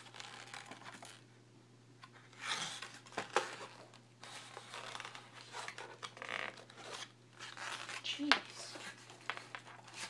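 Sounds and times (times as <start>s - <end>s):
cardboard rustling and scraping: 2.1s - 10.0s.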